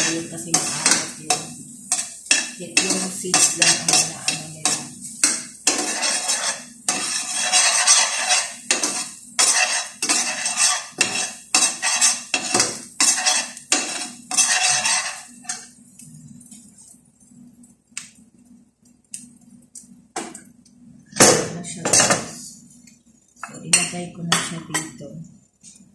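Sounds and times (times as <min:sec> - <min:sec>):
metal spatula scraping pan: 0:00.0 - 0:15.7.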